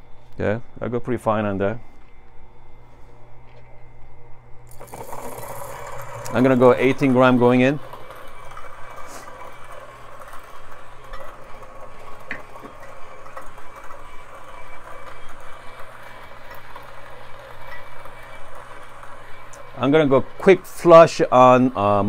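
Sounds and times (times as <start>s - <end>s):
electric coffee grinder running: 4.7s - 22.0s.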